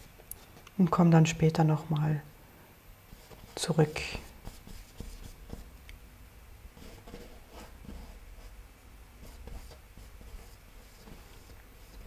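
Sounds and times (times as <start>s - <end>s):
low room hum: 0.0s - 12.0s
paintbrush strokes on canvas: 3.1s - 5.7s, 9.2s - 12.0s.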